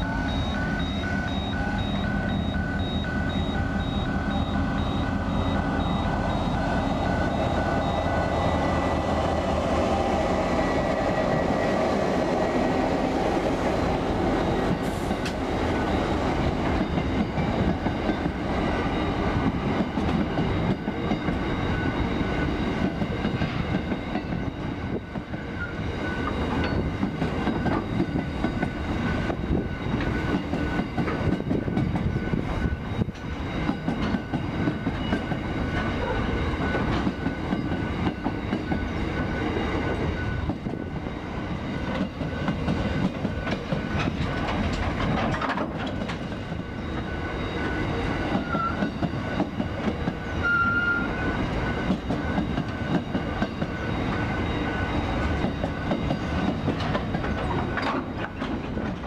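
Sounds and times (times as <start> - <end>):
train wheels rumbling on rail: 0.0 - 59.0
clickety-clack over rail joints: 14.6 - 15.4, 16.5 - 41.0, 41.8 - 59.0.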